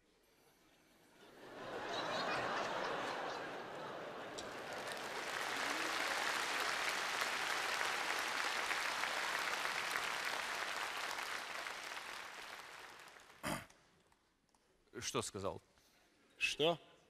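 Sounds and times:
audience applauding: 1.9s - 13.5s.

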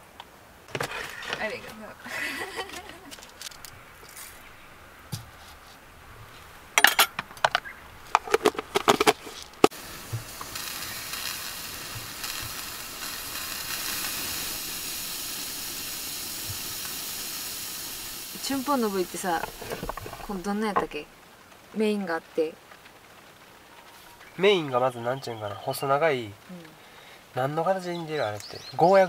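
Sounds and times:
plastic container and cookware clatter: 0.7s - 1.7s, 6.8s - 9.7s, 19.3s - 21.0s
gas stove burner hissing: 1.3s - 21.1s.

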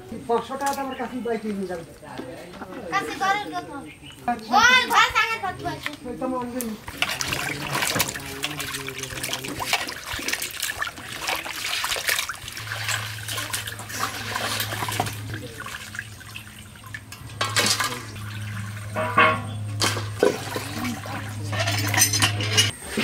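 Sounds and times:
water dripping: 6.4s - 22.1s
water splashing in metal bowl: 6.8s - 22.7s.

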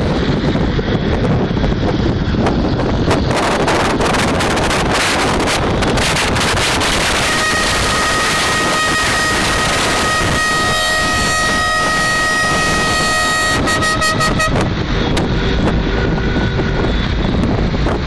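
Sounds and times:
road rumble: 0.0s - 18.0s
wind rushing over microphone: 0.0s - 18.0s
car horns blaring: 5.4s - 17.4s.

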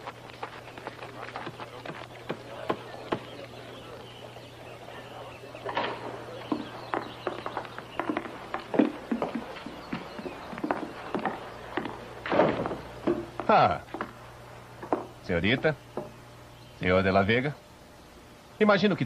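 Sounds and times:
footsteps and small knocks: 0.0s - 4.5s, 5.6s - 14.2s, 14.8s - 16.2s.

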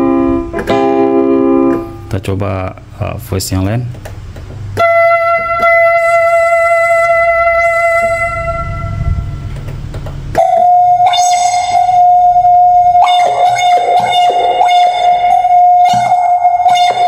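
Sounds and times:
keyboard held high note: 0.0s - 2.1s, 10.4s - 17.0s.

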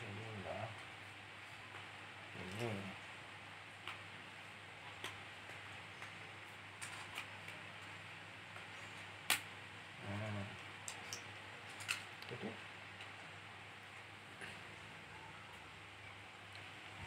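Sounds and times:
plastic snap: 9.3s - 9.5s
plastic toy pieces clacking: 10.8s - 12.1s.

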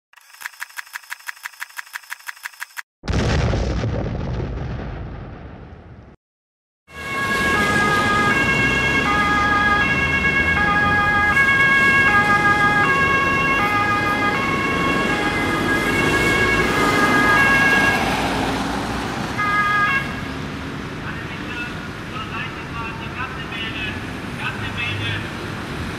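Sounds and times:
boom-like hit: 3.0s - 6.2s
two-tone emergency siren: 6.9s - 18.6s, 19.4s - 20.3s
road traffic engine rumble: 7.0s - 25.9s.

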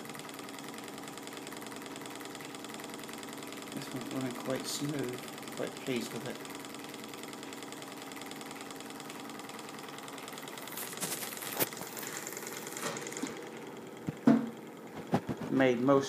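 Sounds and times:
small engine whirring: 0.0s - 15.8s
sharp knock: 14.2s - 14.6s.

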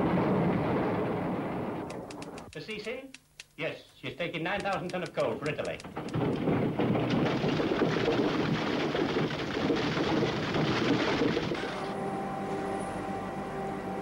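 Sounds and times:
machinery hum with tones: 11.5s - 14.0s.

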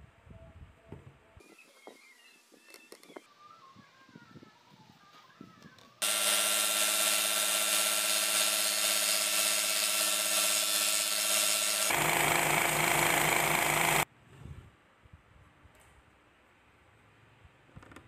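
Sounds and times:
belt sander grinding wood: 6.0s - 14.0s.

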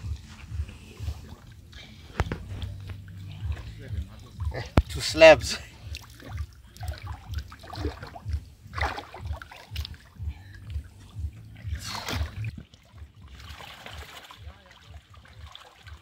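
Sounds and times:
low thuds: 0.0s - 15.3s
water sloshing and splashing: 0.0s - 16.0s
fish splashing: 5.7s - 16.0s.

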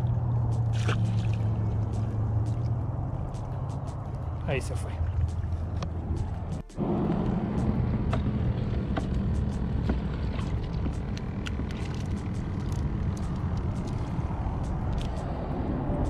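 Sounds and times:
low rumble: 0.0s - 16.0s
water bubbling and splashing: 0.0s - 16.0s
small wet clicks: 9.0s - 15.4s.

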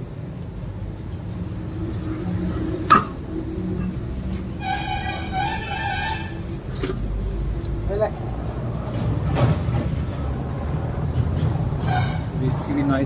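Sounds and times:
sharp metallic knock: 2.9s - 3.2s.

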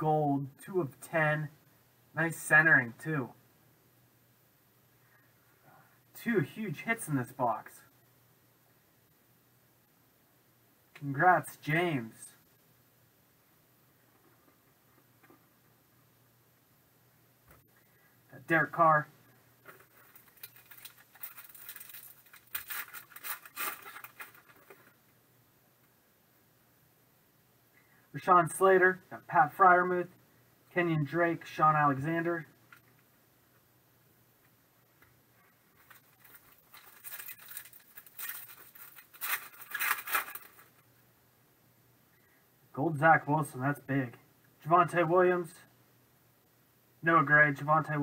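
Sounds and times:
foil wrapper crinkling: 19.7s - 25.0s, 35.7s - 40.8s.

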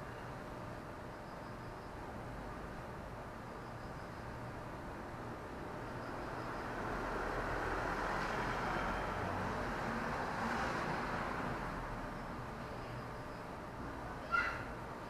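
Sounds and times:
vehicle passing by: 6.2s - 12.6s.

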